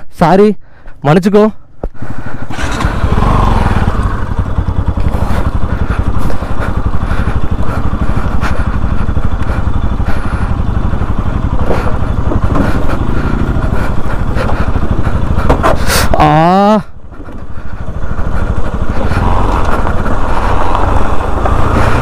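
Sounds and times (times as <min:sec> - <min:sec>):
motorcycle engine running: 0:01.6 - 0:22.0
bike knocks and rattles: 0:11.4 - 0:16.1.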